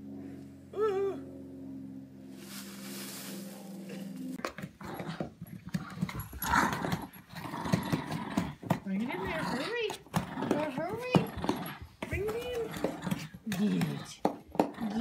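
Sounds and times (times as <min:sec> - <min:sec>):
steady low hum: 0:00.0 - 0:14.2
puppy scratching cardboard box: 0:04.6 - 0:15.0.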